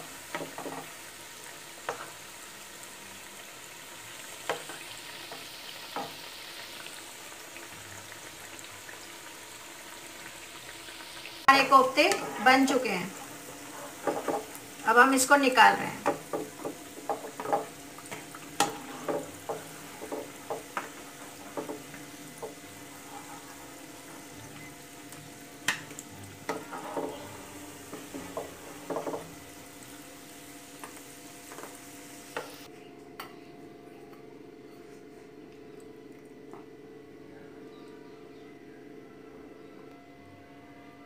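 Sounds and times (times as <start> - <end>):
oil frying: 0.0 - 32.7
spatula knocking against pan: 16.0 - 22.6.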